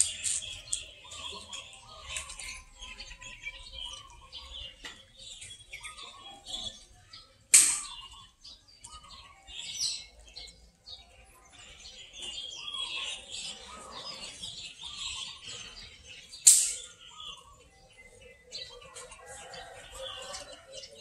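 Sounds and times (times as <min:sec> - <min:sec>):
small birds chirping: 0:00.0 - 0:21.0
sharp loud click: 0:07.5 - 0:08.0, 0:16.4 - 0:16.9.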